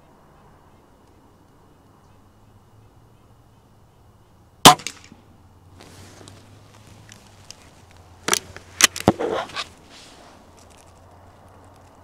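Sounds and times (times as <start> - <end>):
air rifle shot: 4.7 - 5.1.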